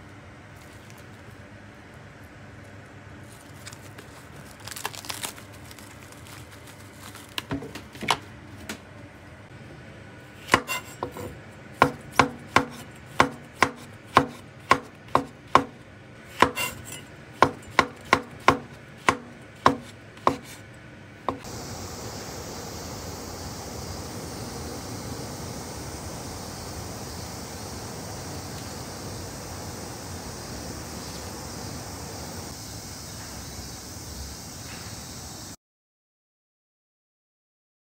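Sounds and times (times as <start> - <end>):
handling noises: 2.6 - 9.1.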